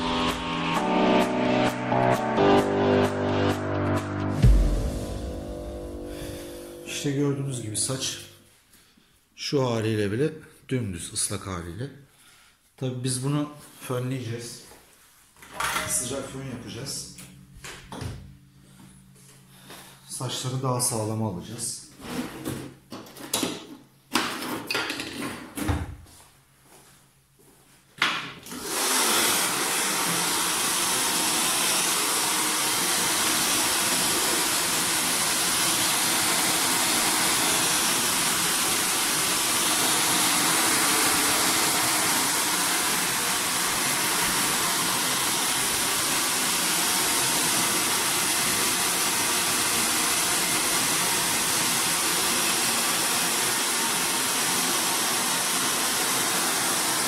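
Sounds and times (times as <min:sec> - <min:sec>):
hair dryer running: 0:00.0 - 0:07.0, 0:28.5 - 0:57.0.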